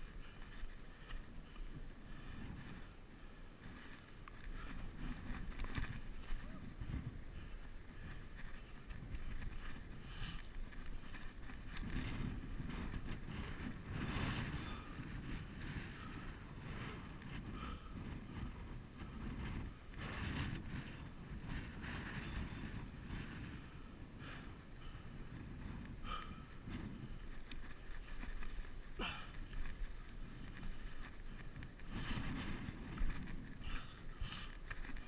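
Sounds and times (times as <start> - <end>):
rustling of dry grass and stones: 0.0 - 35.0
wind buffeting microphone: 0.0 - 35.0.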